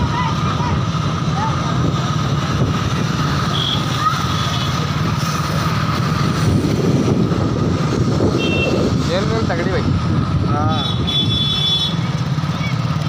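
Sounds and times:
vehicle engine rumble: 0:00.0 - 0:13.0
wind on microphone: 0:05.8 - 0:11.3.

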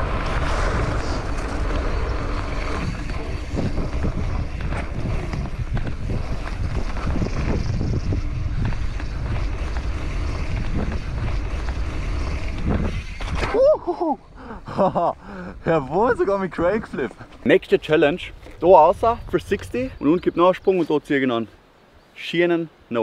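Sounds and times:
bike tyres clicking and knocking: 0:00.0 - 0:13.5
wind buffeting microphone: 0:00.0 - 0:20.4.

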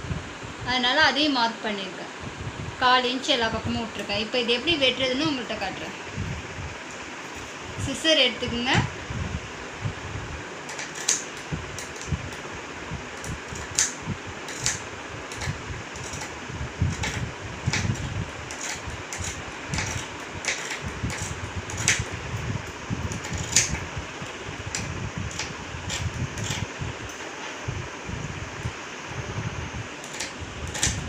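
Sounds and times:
steady background whirr: 0:00.0 - 0:31.0
scissors snipping cloth: 0:10.7 - 0:12.4, 0:13.2 - 0:22.1, 0:23.1 - 0:23.8, 0:30.0 - 0:31.0.

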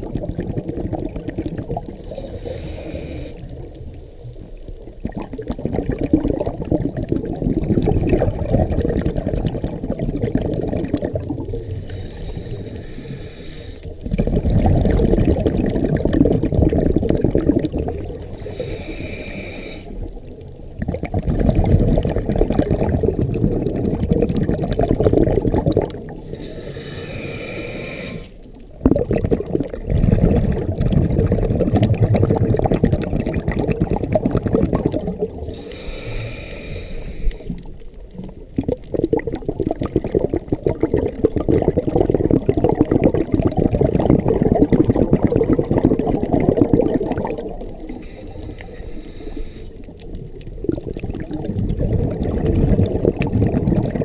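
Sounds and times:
exhaled bubbles rumbling: 0:00.0 - 0:54.0
regulator inhale hiss: 0:02.0 - 0:04.5, 0:11.5 - 0:14.0, 0:18.3 - 0:20.1, 0:26.2 - 0:28.4, 0:35.4 - 0:37.7, 0:47.7 - 0:49.9.

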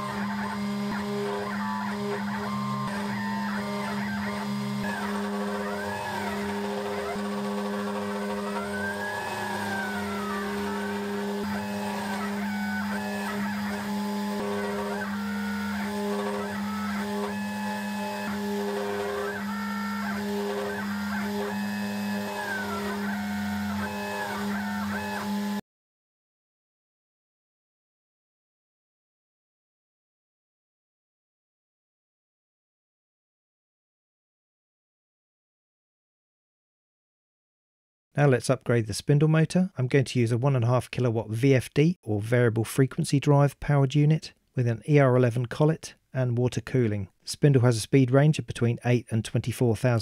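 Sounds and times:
cnc router whining tones: 0:00.0 - 0:25.6
spindle humming steadily: 0:00.0 - 0:25.6.

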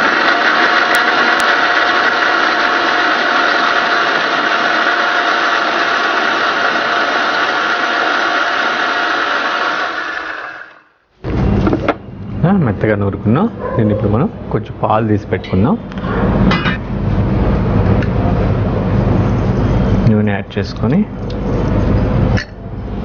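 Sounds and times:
electric mixer grinder running: 0:00.0 - 0:11.0.

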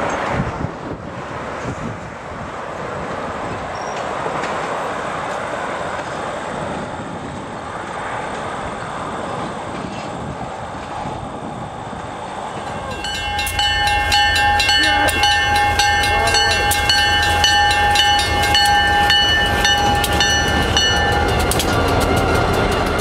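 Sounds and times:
freight train rumble: 0:00.0 - 0:23.0
train wheels clicking on rails: 0:02.8 - 0:23.0
steady high-pitched tones: 0:12.4 - 0:23.0.

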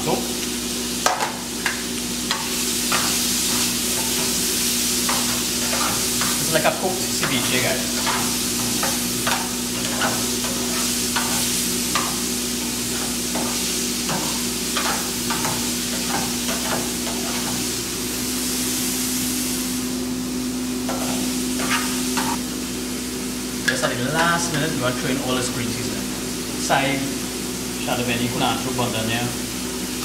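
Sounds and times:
food sizzling in a frying pan: 0:00.0 - 0:30.0
utensil scraping a pan: 0:20.9 - 0:22.4.

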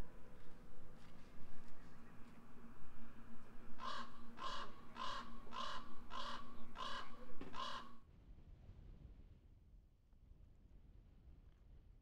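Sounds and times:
crow cawing: 0:03.8 - 0:08.0.

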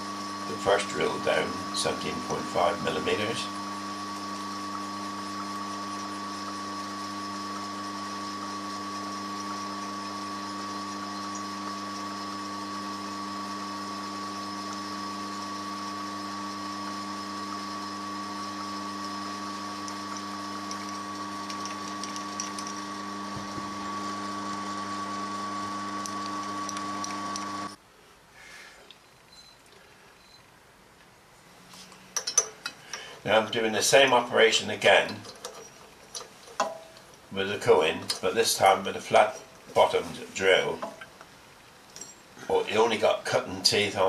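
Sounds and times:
milling machine drilling metal: 0:00.0 - 0:27.8.

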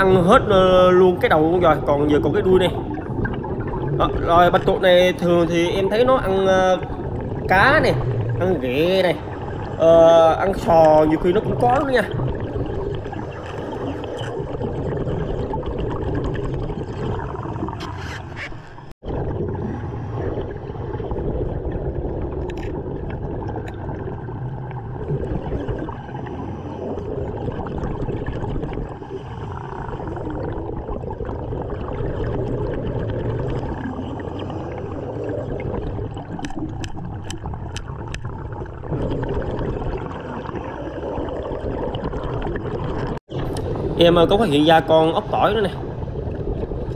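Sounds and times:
diver's breathing bubbles: 0:00.0 - 0:46.9
underwater water noise: 0:00.0 - 0:46.9.

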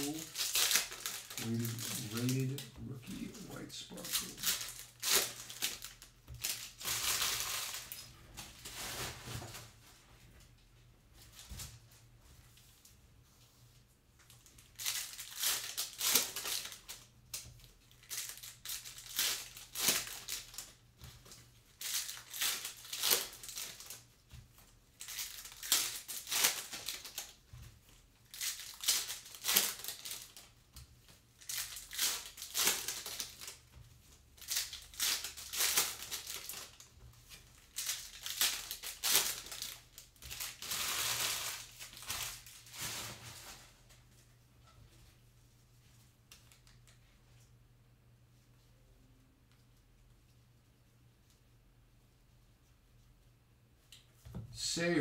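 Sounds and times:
card wrappers crinkling: 0:00.0 - 0:09.1, 0:14.3 - 0:30.6, 0:31.2 - 0:33.7, 0:34.3 - 0:44.0.

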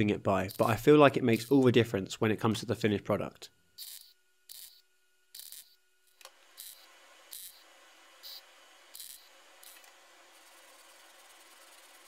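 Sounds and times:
welding arc bursts: 0:03.8 - 0:05.8, 0:08.2 - 0:09.8.

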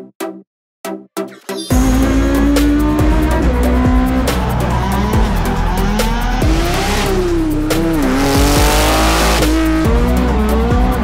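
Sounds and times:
background music: 0:00.0 - 0:11.0
tyres squealing and skidding: 0:01.3 - 0:09.7
car engines revving: 0:01.7 - 0:11.0.

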